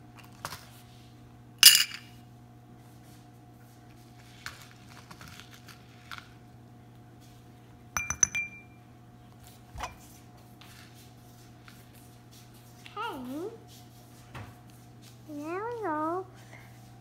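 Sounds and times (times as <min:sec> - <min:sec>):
chocolates clinking in glass bowl: 0:01.6 - 0:02.1.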